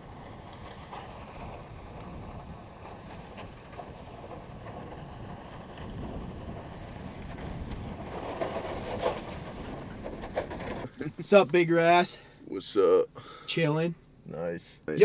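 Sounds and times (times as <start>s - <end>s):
wind buffeting microphone: 0.0s - 10.9s
snowplow blade pushing snow: 0.0s - 11.1s.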